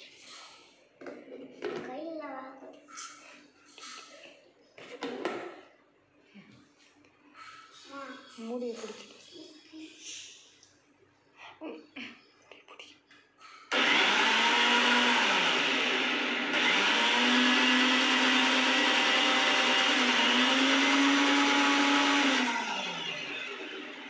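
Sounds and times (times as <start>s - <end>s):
blender running: 13.7s - 24.0s.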